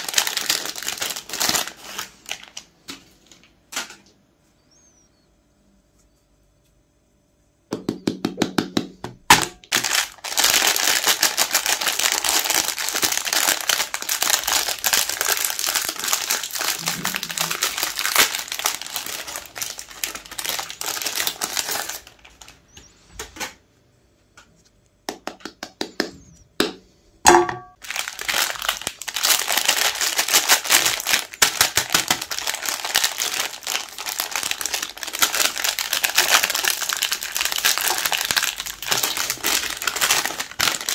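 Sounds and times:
plastic wrappers crinkling and tearing: 0.0 - 4.1, 9.3 - 22.8, 27.8 - 40.9.

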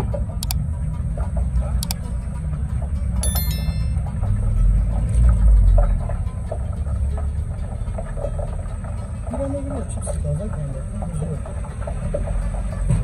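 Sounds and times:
short bell-like ding: 3.2 - 4.1.

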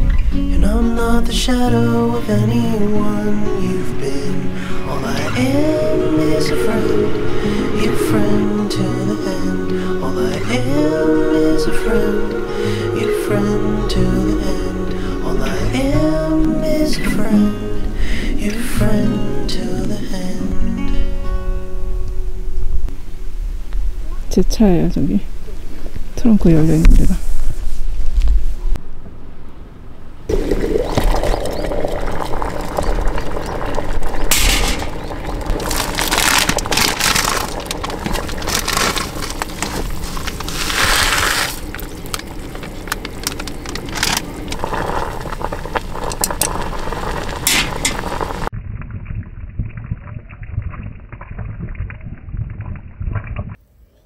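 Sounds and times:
kettle heating water: 30.3 - 39.7, 41.7 - 48.5
water pouring: 30.3 - 53.6
packet rustling: 34.4 - 48.2.

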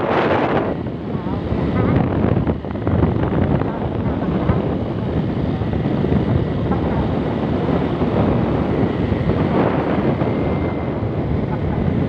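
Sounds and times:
motorcycle engine running: 0.0 - 12.0
wind rushing over microphone: 0.0 - 12.0.

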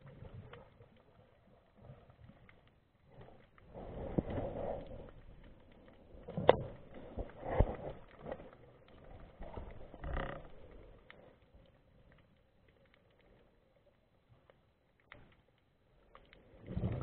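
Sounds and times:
muffled underwater swishes: 0.0 - 12.4, 16.3 - 17.0.

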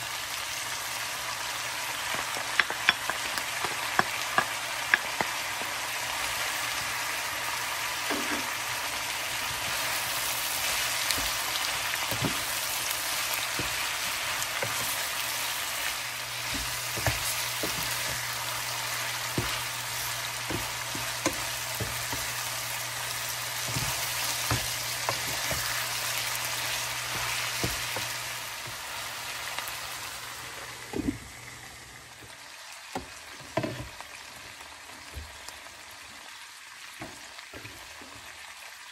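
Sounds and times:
food sizzling in a frying pan: 0.0 - 38.9
wooden spatula scraping a pan: 9.4 - 22.6, 23.5 - 28.8.

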